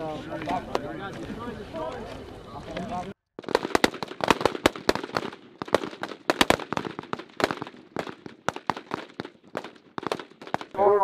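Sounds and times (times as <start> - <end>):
rifle shots: 3.4 - 10.8.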